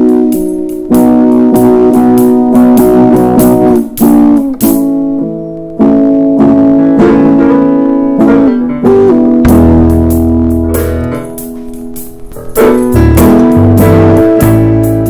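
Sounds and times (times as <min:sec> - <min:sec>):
drum and cymbal hits: 0:09.5 - 0:15.0.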